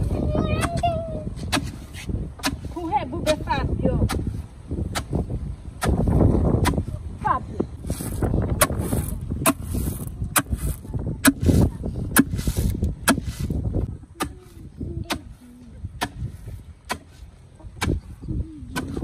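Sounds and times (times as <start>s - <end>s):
pestle pounding in wooden mortar: 5.8s - 6.9s, 8.5s - 13.4s.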